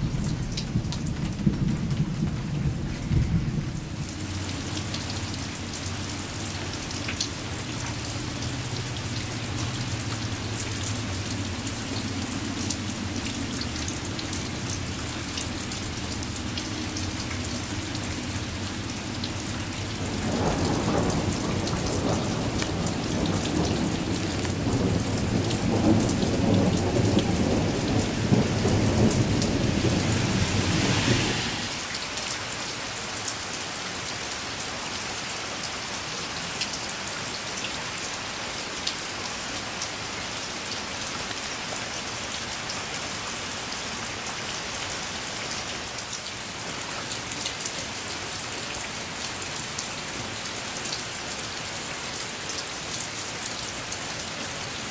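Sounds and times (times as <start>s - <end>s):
rolling thunder: 0.0s - 4.1s, 19.9s - 31.8s
steady rain: 0.0s - 54.9s.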